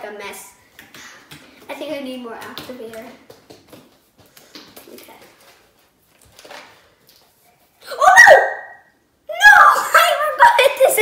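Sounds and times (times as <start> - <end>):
child's high exclamation: 7.8 - 11.0.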